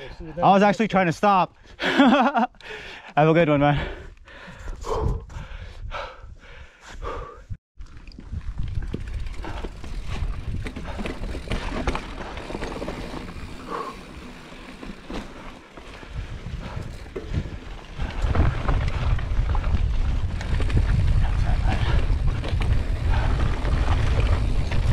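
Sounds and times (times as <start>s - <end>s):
wind buffeting microphone: 4.3s - 7.2s, 7.9s - 12.4s, 15.9s - 24.9s
tyre noise on dirt trail: 7.1s - 24.9s
bike clicks and rattles: 7.8s - 24.9s.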